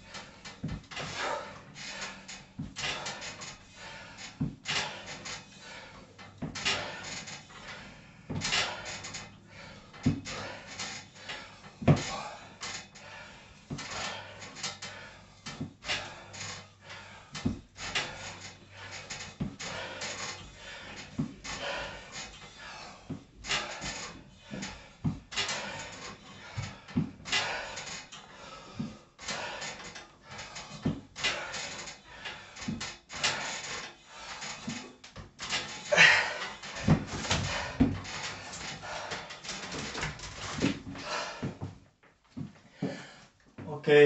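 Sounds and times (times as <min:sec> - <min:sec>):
metal frame knocking and creaking: 0:00.0 - 0:42.9
short breath: 0:42.7 - 0:43.4.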